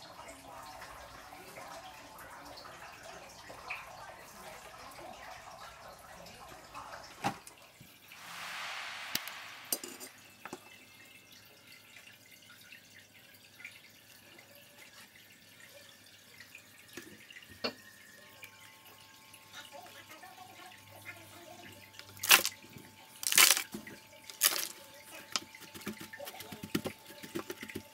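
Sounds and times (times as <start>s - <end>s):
brief hiss: 8.2s - 10.4s.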